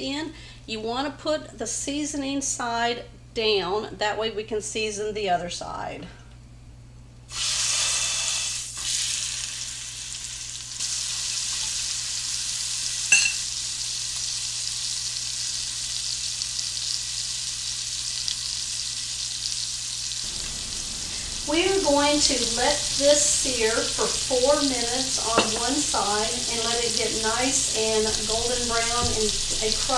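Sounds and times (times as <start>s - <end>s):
meat sizzling in a skillet: 7.3s - 29.9s.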